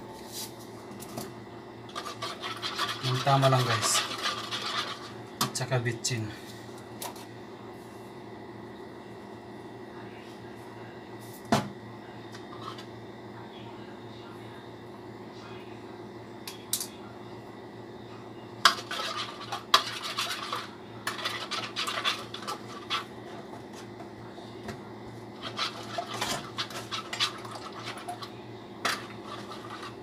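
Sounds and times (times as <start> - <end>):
spoon beating eggs on plate: 18.6 - 23.9.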